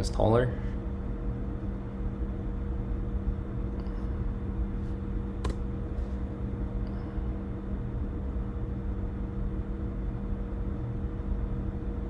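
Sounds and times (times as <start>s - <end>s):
low machine hum: 0.0s - 12.0s
sharp click: 5.4s - 5.6s.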